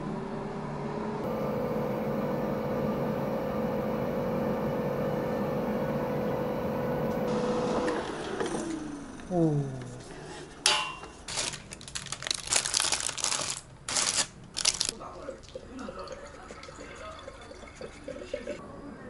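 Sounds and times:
air fryer fan humming: 0.9 - 9.3.

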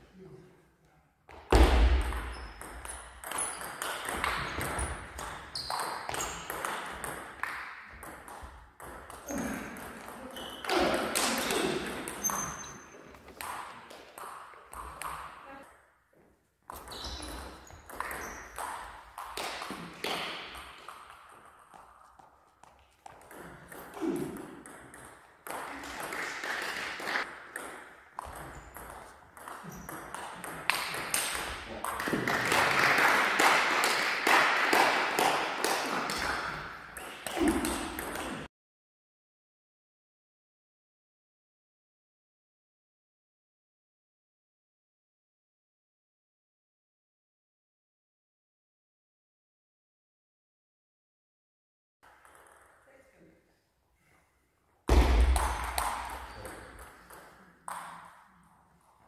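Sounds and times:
ping pong ball hitting bats: 1.5 - 15.4, 16.7 - 22.3, 23.0 - 32.6, 34.7 - 38.5, 52.1 - 52.8, 54.9 - 58.3.

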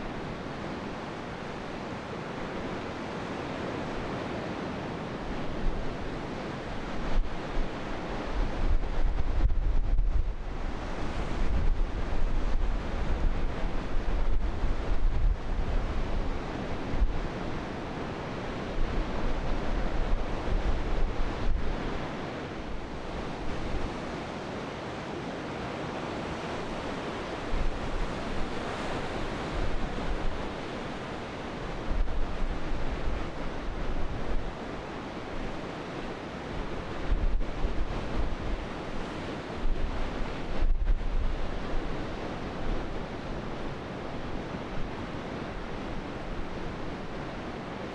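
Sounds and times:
surf washing over rocks: 0.0 - 47.9
wind buffeting microphone: 6.7 - 17.7, 18.7 - 24.0, 36.6 - 47.9.

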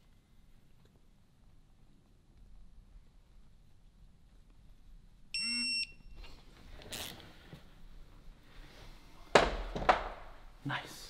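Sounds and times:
high electronic beep: 5.4 - 6.1.

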